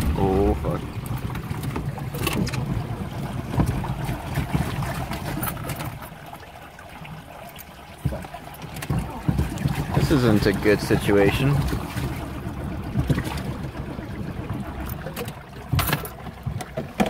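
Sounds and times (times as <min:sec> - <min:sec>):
water sloshing against car body: 0:00.0 - 0:17.0
car engine running: 0:08.8 - 0:17.0.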